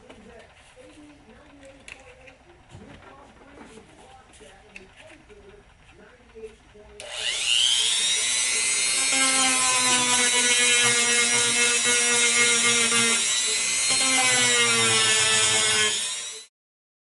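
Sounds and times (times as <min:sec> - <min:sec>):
rotary tool grinding whine: 0:03.4 - 0:16.5.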